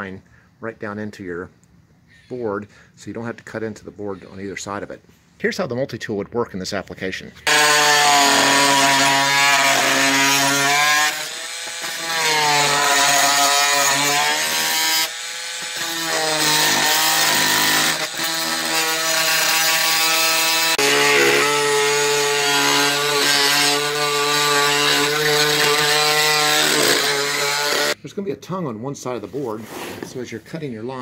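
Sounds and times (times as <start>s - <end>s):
multi-tool cutting wood: 7.4s - 28.0s.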